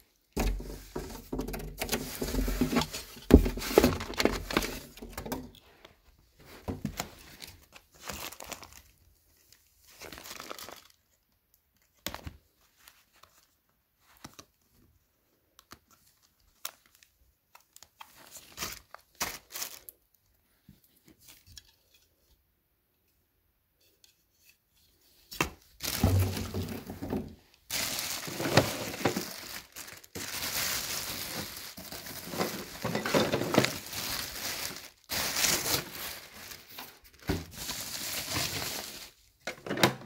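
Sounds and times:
plastic bags rustling: 0.0s - 5.8s, 6.4s - 11.2s, 16.0s - 20.0s, 25.7s - 39.4s.

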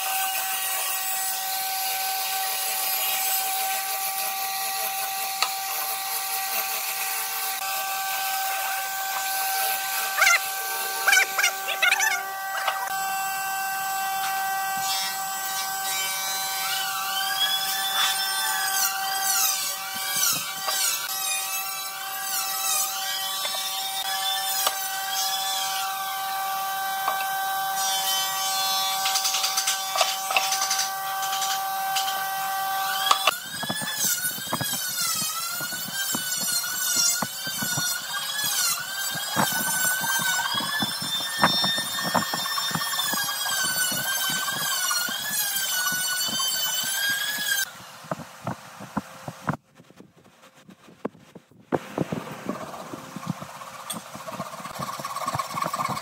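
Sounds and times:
handsaw cutting wood: 0.0s - 13.1s, 13.9s - 48.2s, 51.2s - 56.0s.

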